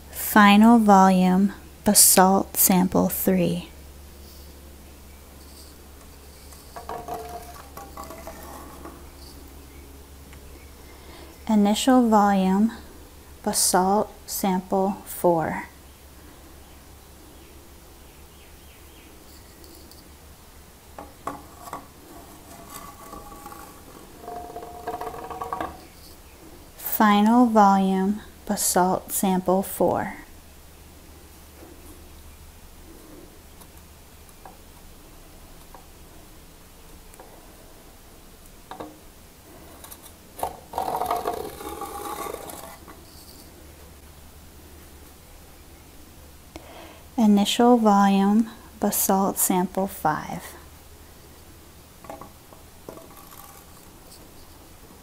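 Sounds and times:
low steady hum: 0.0s - 55.0s
rock knocking on glass cylinder: 6.8s - 8.8s.

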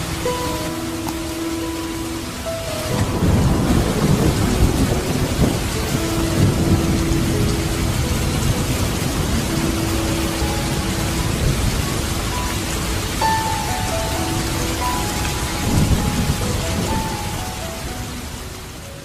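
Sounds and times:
rain falling: 0.0s - 19.0s
deep rumble: 2.7s - 12.9s.

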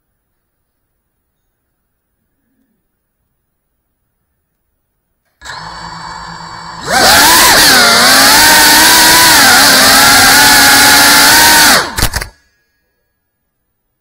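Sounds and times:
drone motors whining: 5.4s - 12.3s.

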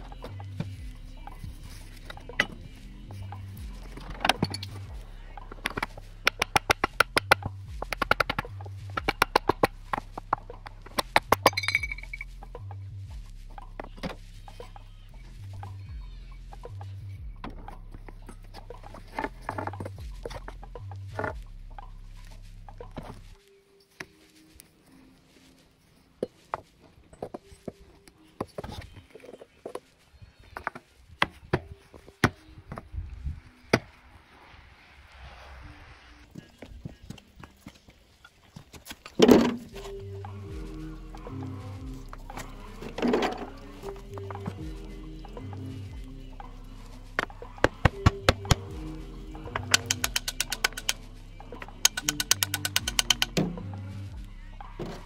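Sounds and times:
background music with bass: 0.0s - 23.5s, 39.1s - 55.0s
sharp taps and knocks: 49.5s - 51.0s, 51.8s - 53.6s.

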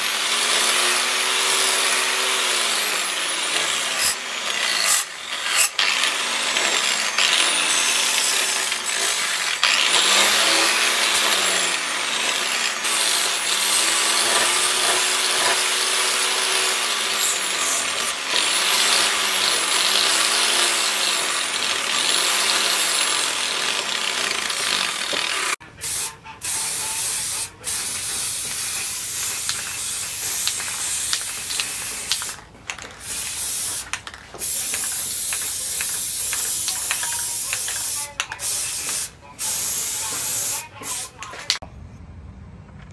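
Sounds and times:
angle grinder on steel: 0.0s - 41.6s
aerosol spray can hissing: 25.8s - 41.6s.

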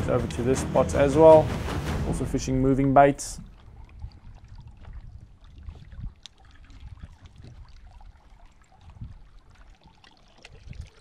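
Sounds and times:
small waves lapping against hull: 1.5s - 11.0s
wind rumble on microphone: 3.3s - 11.0s.

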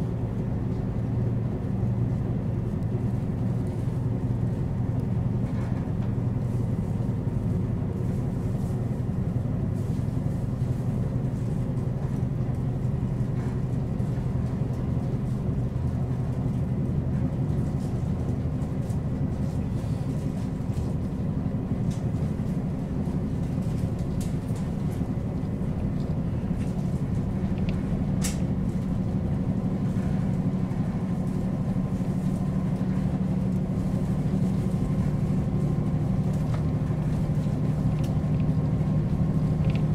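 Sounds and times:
diesel railcar engine idling: 0.0s - 39.9s.

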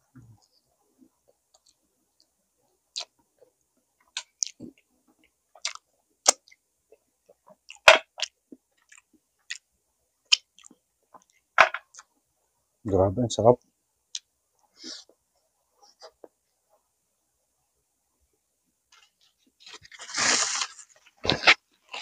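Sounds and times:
person chewing with wet smacks: 1.3s - 2.3s, 2.9s - 3.2s, 4.0s - 6.6s, 7.3s - 9.7s, 10.3s - 12.1s.

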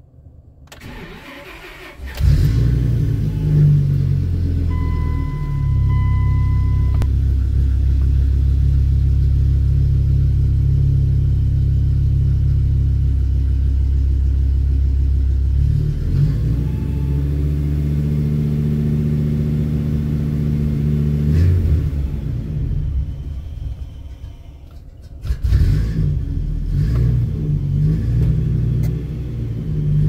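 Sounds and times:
engine idling and revving: 0.7s - 30.0s
steady high beep: 4.7s - 7.1s
click: 28.2s - 29.0s.

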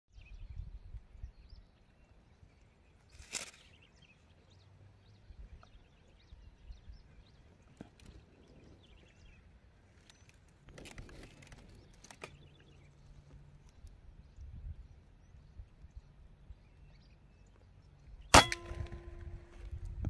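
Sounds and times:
faint high bird chirps: 0.1s - 10.4s.

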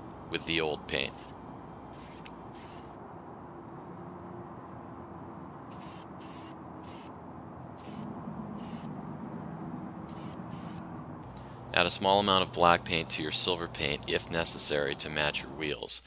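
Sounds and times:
low background hum: 0.0s - 16.0s
aerosol spray hissing: 1.9s - 2.9s, 5.7s - 7.1s.

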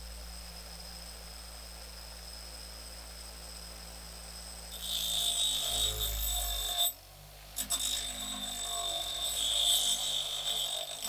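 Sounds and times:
bench grinder motor humming: 4.7s - 7.0s, 7.6s - 11.0s
metal grinding hiss: 4.7s - 11.0s.

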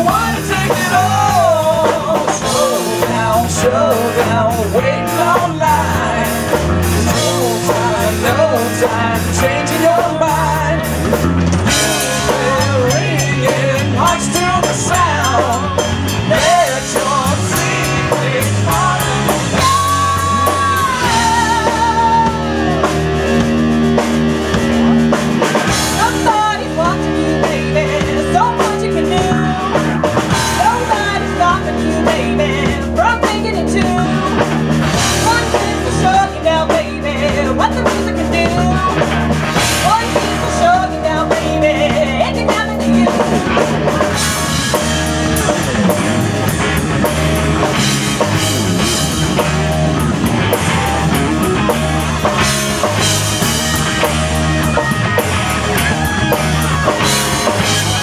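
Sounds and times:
bending lead guitar: 0.0s - 58.0s
live rock band: 0.0s - 58.0s.

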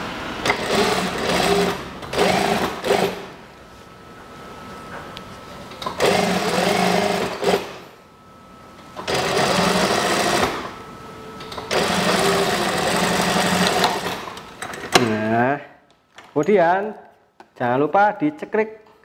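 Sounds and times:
faint steady hum: 0.0s - 19.0s
sewing machine stitching: 0.4s - 3.2s, 11.7s - 14.3s.

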